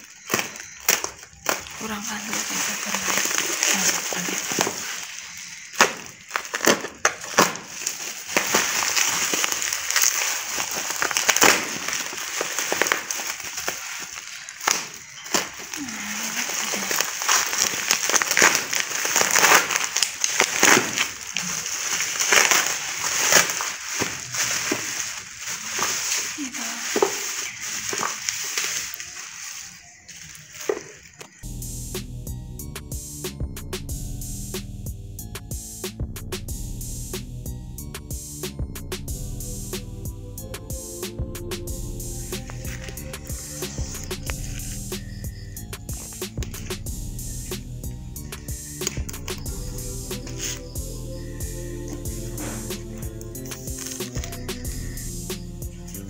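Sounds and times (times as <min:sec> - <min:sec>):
bubble wrap crinkling and clicking: 0:00.0 - 0:31.4, 0:42.0 - 0:56.0.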